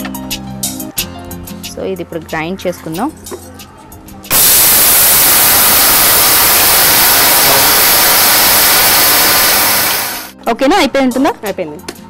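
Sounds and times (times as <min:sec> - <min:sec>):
electric mixer grinder running: 0:04.3 - 0:10.4.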